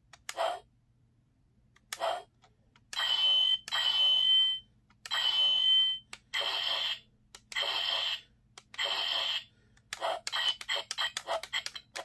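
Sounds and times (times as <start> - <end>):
toy electronic sound effects: 2.9 - 12.0.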